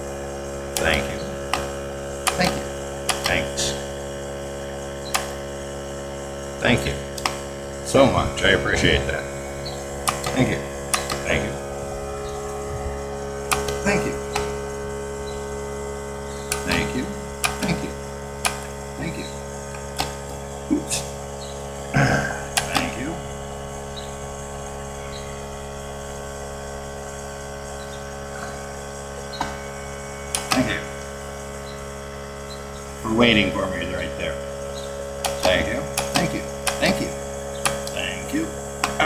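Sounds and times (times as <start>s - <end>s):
steady hum: 0.0s - 39.0s
tally counter clicking: 0.7s - 3.6s, 10.0s - 11.4s, 13.4s - 14.6s, 16.4s - 18.7s, 22.5s - 23.0s, 30.3s - 31.8s, 35.2s - 38.1s.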